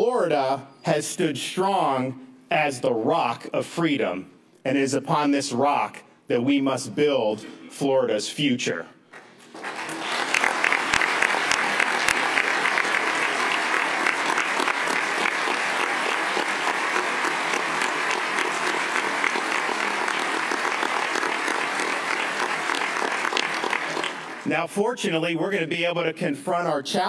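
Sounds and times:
audience applauding: 9.2 - 24.5.

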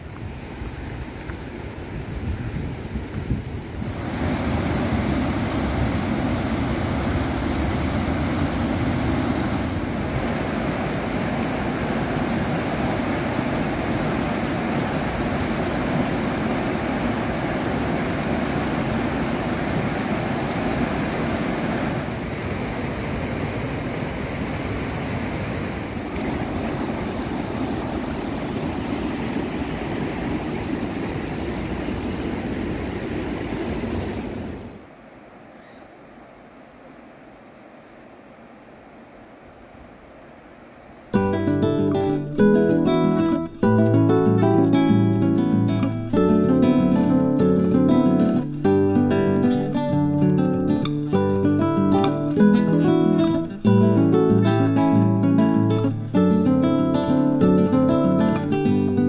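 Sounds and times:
waterfall rushing: 3.7 - 35.4
white-water rapids: 3.7 - 41.3.

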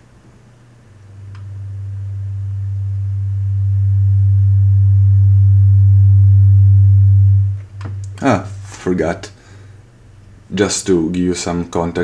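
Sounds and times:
faint higher tone: 1.2 - 8.6
low electronic drone: 1.2 - 9.0.

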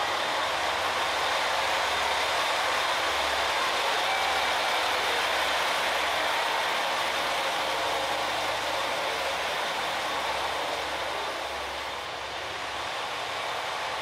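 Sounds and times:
continuous rushing noise: 0.0 - 14.0.

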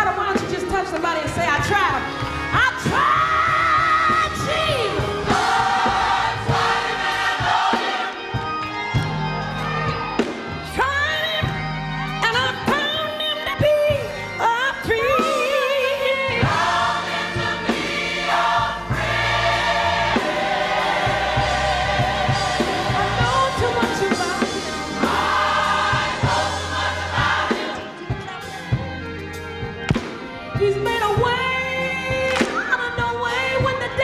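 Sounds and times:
band accompaniment: 0.0 - 34.0
gospel choir singing: 1.6 - 34.0
steady bass: 16.2 - 29.9.

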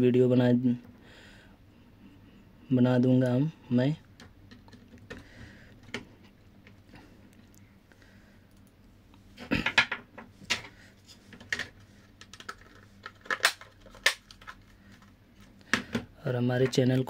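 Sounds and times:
plastic casing clicking: 12.2 - 14.6.

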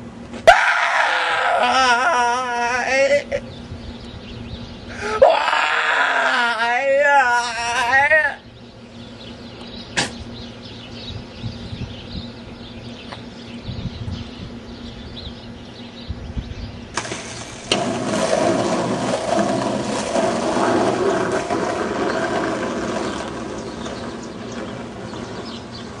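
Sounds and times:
skateboard wheels rolling on asphalt: 17.0 - 26.0.

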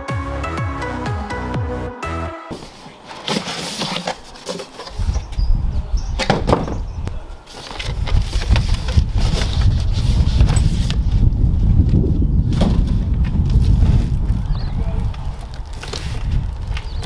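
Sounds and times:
cardboard rustling and scraping: 2.5 - 5.5, 7.4 - 14.5, 15.2 - 17.0
wind rumble on microphone: 4.9 - 17.0.

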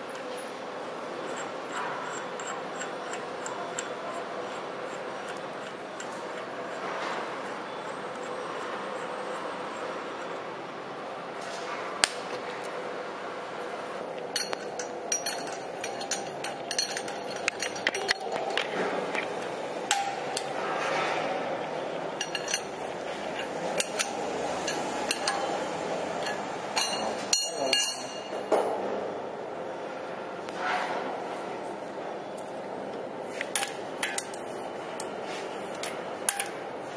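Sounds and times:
steady background noise: 0.0 - 36.9
wrenches clinking on metal: 14.3 - 20.5, 22.2 - 25.6, 26.2 - 28.3.

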